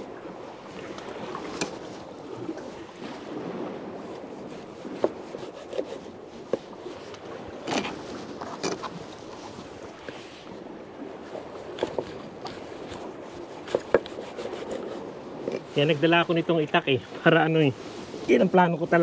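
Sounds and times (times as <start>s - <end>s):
sea water washing: 0.0s - 19.0s
knife cutting fish on wood: 5.0s - 6.1s, 11.8s - 15.6s.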